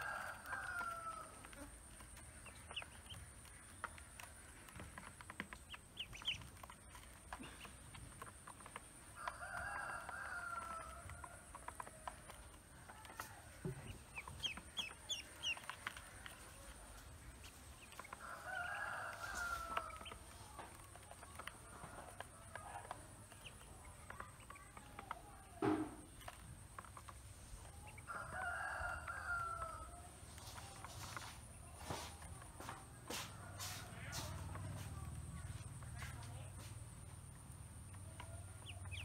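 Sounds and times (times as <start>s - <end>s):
rooster crowing: 0.0s - 1.4s, 9.2s - 11.4s, 18.2s - 20.0s, 28.1s - 30.0s
ducklings peeping: 0.0s - 28.1s, 33.9s - 39.0s
ducklings pecking feed off plastic: 0.0s - 39.0s
thump: 25.6s - 26.1s.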